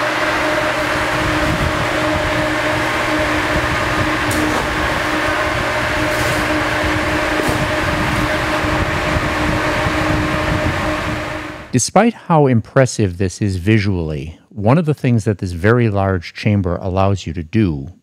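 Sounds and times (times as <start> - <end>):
exhaust fan running: 0.0 - 11.8.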